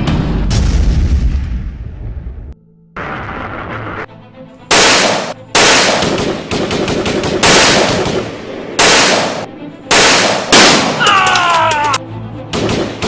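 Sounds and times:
automatic rifle fire: 0:04.7 - 0:11.0.

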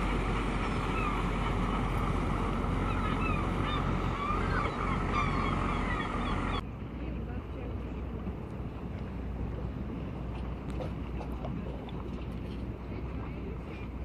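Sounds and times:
gulls calling: 0:00.0 - 0:06.6
boat engine running: 0:00.0 - 0:14.0
water noise: 0:00.0 - 0:14.0
wind: 0:00.0 - 0:14.0.

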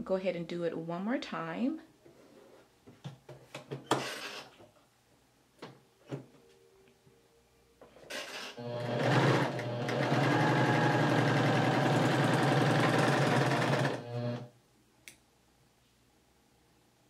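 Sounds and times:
serger sewing machine stitching: 0:08.1 - 0:14.5.

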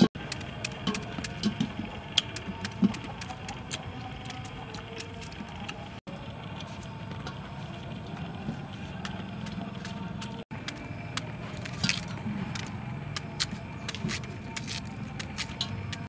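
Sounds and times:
steady low hum: 0:00.0 - 0:16.0
blades clicking on metal bowl: 0:00.1 - 0:05.8, 0:08.9 - 0:16.0
knives cutting melon: 0:09.0 - 0:16.0.

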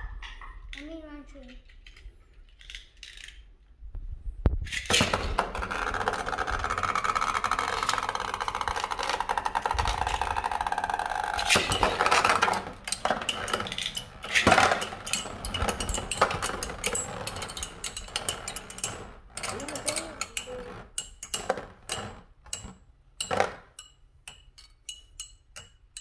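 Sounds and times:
spinning tops clattering: 0:04.7 - 0:23.4.

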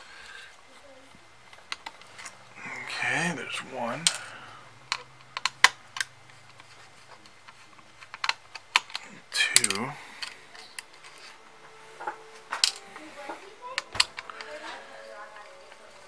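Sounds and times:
screwdriver clicks and taps: 0:13.8 - 0:14.6.

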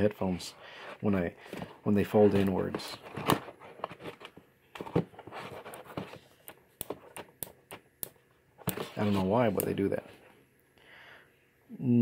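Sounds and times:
handling rustle: 0:01.4 - 0:07.3.

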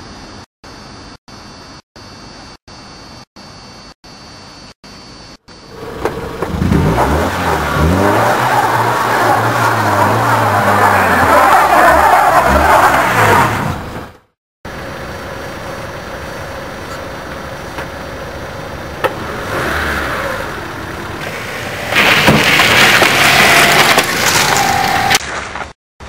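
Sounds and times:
car engine revving: 0:05.7 - 0:14.1, 0:14.8 - 0:25.0
tyres slipping on ice: 0:21.2 - 0:25.7.

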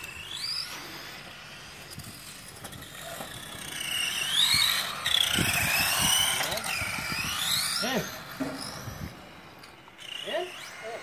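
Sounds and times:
radio-controlled car motors whining: 0:00.0 - 0:11.0.

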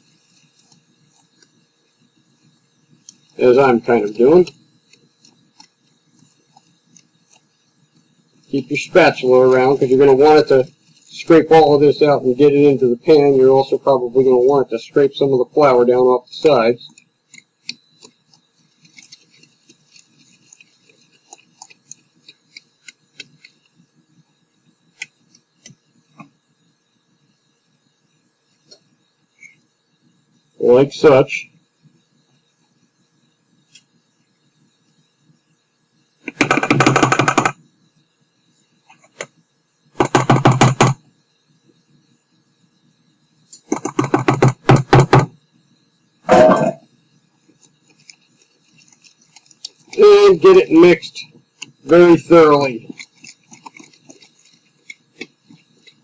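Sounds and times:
spoon stirring batter in metal bowl: 0:16.8 - 0:23.6, 0:47.6 - 0:50.0, 0:51.6 - 0:56.0.

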